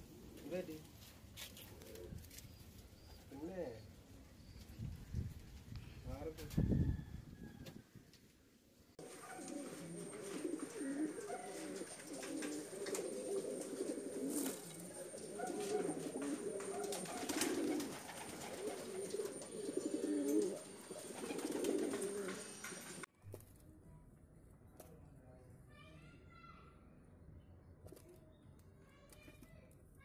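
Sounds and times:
pigeons cooing: 9.0 - 23.0.

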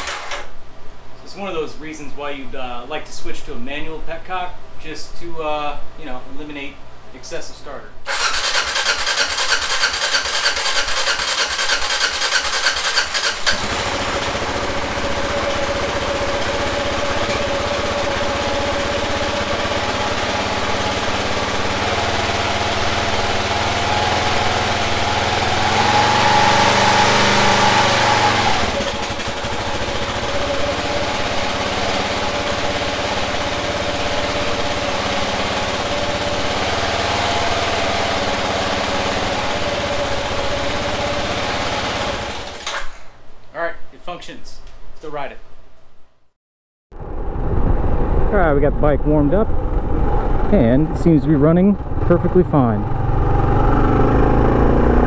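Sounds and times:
electric starter cranking engine: 0.0 - 0.5, 8.1 - 43.0
motorcycle engine idling and revving: 8.1 - 42.6, 46.9 - 55.0.

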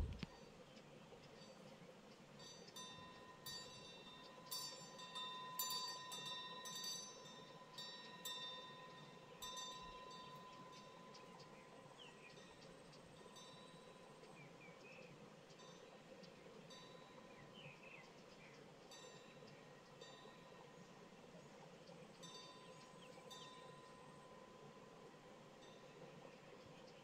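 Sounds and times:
metal wind chime ringing: 2.4 - 11.0.

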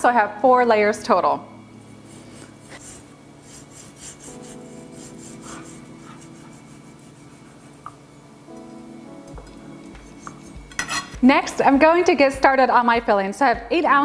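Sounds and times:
knife sawing through sponge cake: 2.1 - 7.8.

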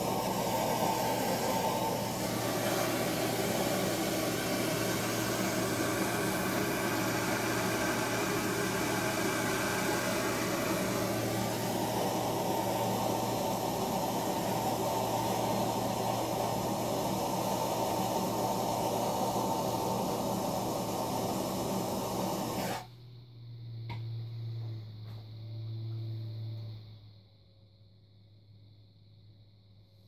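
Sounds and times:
potter's wheel motor hum: 0.0 - 22.9
propane torch hissing: 0.0 - 22.9.

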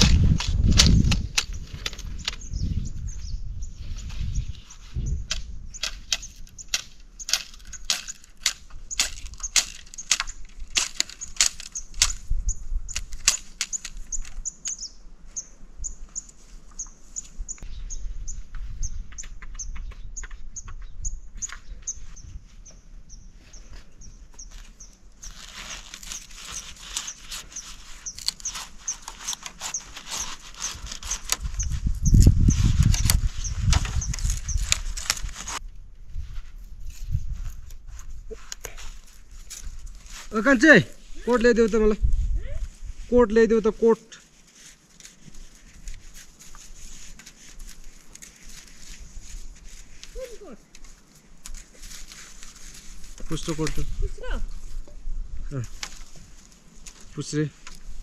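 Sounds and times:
bird chirping: 1.5 - 10.4, 11.1 - 35.2
sharp clicks: 5.2 - 12.3, 12.9 - 14.9.

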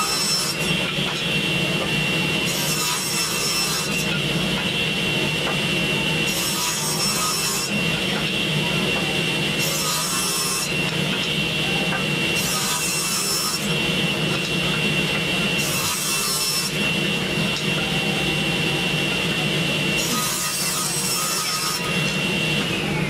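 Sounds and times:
table saw blade whine: 0.0 - 23.0.

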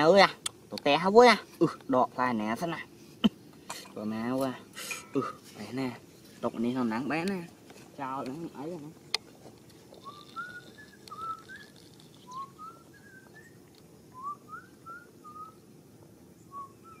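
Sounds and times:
rising whistled notes: 10.0 - 15.6, 16.4 - 17.0.

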